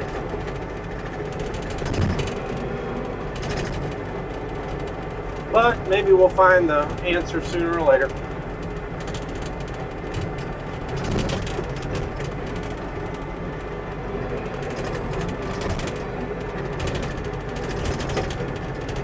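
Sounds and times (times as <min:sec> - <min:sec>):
constant mechanical rattle: 0:00.0 - 0:19.0
diesel engine running loudly: 0:00.0 - 0:19.0.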